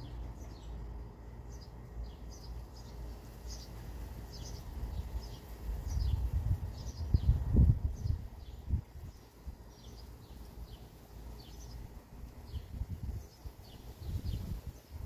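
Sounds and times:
small bird chirping: 0.0s - 15.0s
low microphone rumble: 4.6s - 9.9s.

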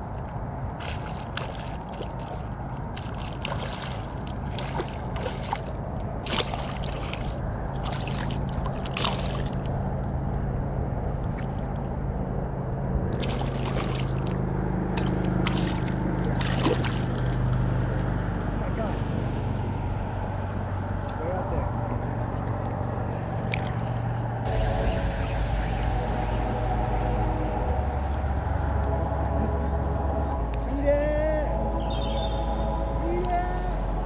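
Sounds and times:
wind: 0.0s - 34.0s
lapping water: 0.7s - 9.8s, 13.1s - 17.6s
fish splashing in water: 0.7s - 9.9s, 13.1s - 17.7s.

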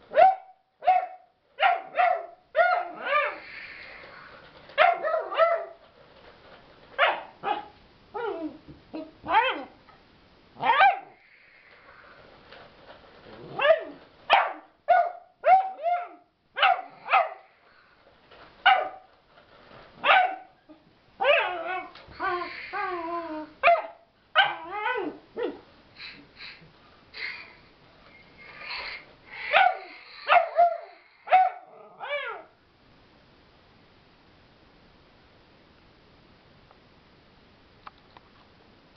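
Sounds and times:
puppy barking: 0.1s - 3.4s, 4.8s - 5.8s, 7.0s - 7.8s, 10.6s - 11.2s, 13.6s - 17.4s, 18.7s - 19.1s, 20.0s - 20.6s, 23.6s - 24.8s, 29.5s - 32.4s.

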